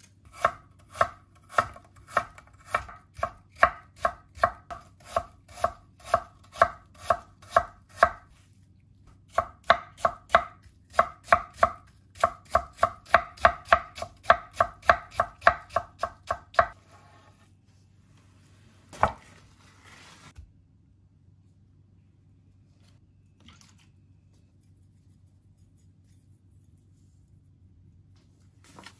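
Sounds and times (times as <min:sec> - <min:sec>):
knife chopping on wooden board: 0:00.3 - 0:08.2, 0:09.3 - 0:16.8.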